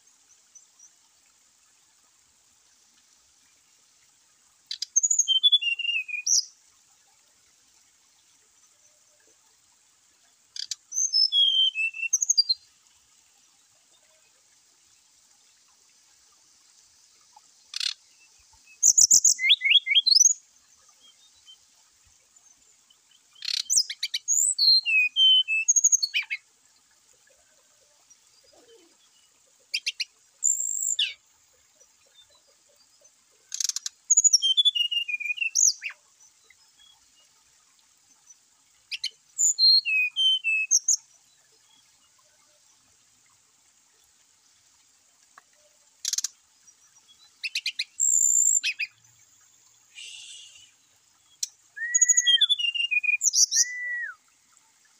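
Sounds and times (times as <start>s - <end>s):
faint steady high hiss: 0.0s - 54.9s
bird whistling high notes: 50.0s - 50.7s, 51.8s - 54.2s.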